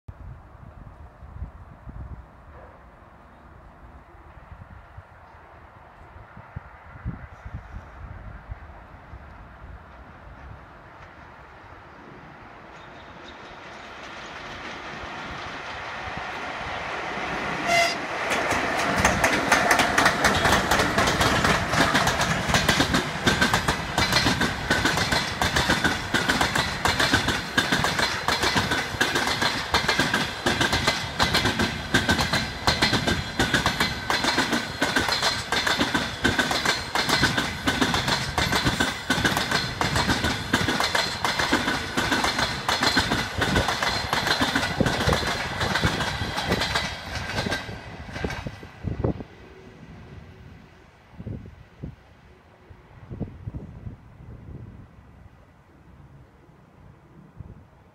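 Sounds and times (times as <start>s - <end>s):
train whistle blast: 17.6s - 18.1s
train wheels clattering over joints: 18.2s - 48.5s.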